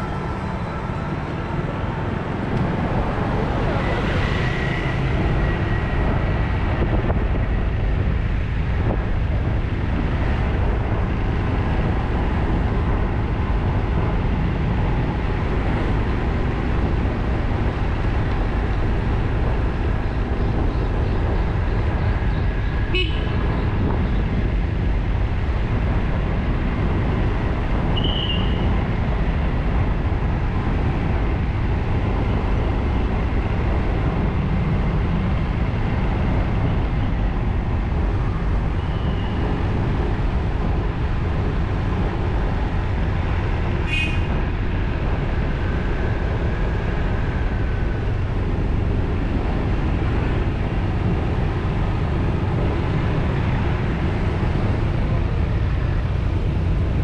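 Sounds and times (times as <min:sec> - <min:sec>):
deep engine rumble: 0:00.0 - 0:57.0
traffic noise: 0:00.0 - 0:57.0
high horn toot: 0:22.9 - 0:23.4, 0:43.9 - 0:44.3.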